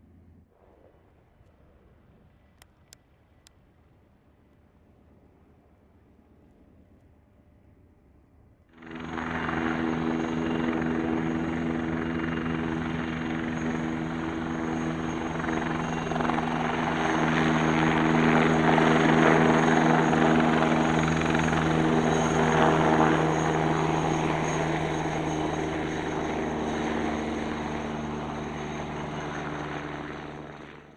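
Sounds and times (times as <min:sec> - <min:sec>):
helicopter flying close by: 0:08.7 - 0:30.9.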